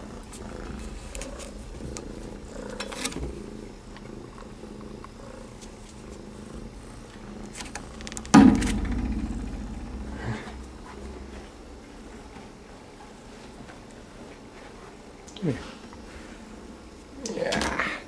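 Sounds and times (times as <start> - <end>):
kitten purring: 0.0 - 12.8.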